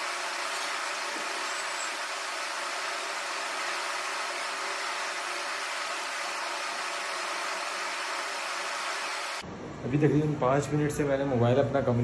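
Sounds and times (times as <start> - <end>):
steady room background noise: 9.4 - 12.0.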